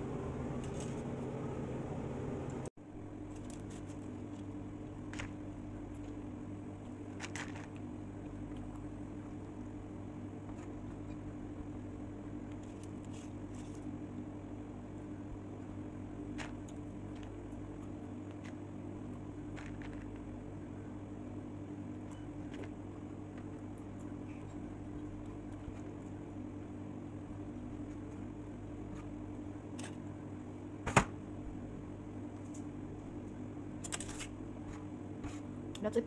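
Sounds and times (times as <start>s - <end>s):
exhaust hood fan humming: 0.0s - 7.1s
aluminium foil crinkling: 3.2s - 5.4s.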